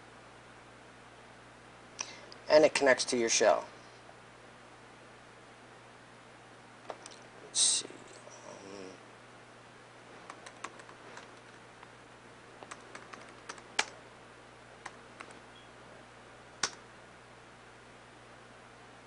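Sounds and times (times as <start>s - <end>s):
laptop keyboard typing: 10.2s - 11.6s, 12.6s - 14.0s, 14.8s - 15.4s, 16.6s - 16.8s.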